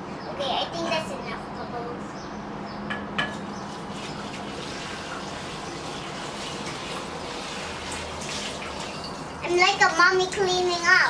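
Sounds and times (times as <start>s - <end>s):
tap water running into sink: 3.9s - 9.7s.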